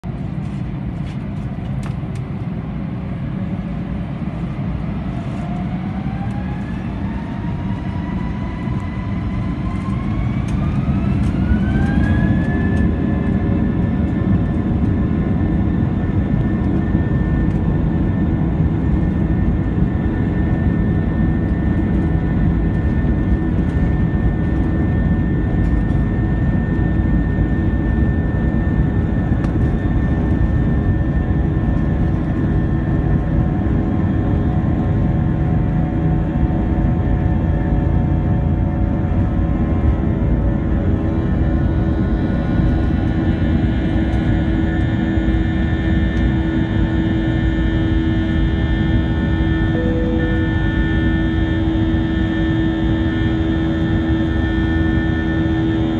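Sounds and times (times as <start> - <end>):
jet engines whining: 0.1 - 55.9
low rumble: 47.8 - 53.8.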